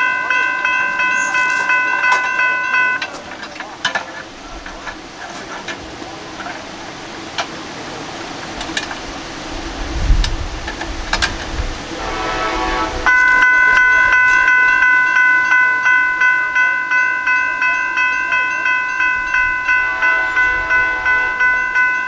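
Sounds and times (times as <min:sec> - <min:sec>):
railroad crossing bell ringing: 0:00.0 - 0:07.4, 0:11.8 - 0:22.0.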